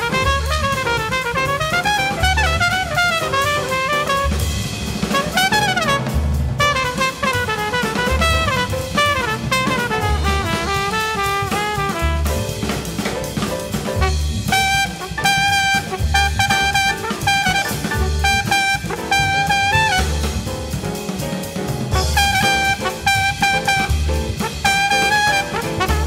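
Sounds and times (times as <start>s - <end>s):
jazz on drum kit and bass: 0.0s - 26.0s
deep bass note: 2.1s - 20.7s, 21.7s - 24.5s.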